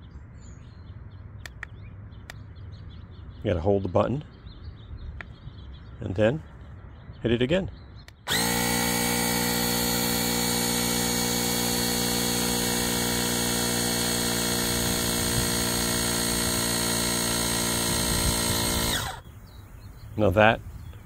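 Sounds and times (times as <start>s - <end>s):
tire inflator compressor drone: 8.1s - 19.2s.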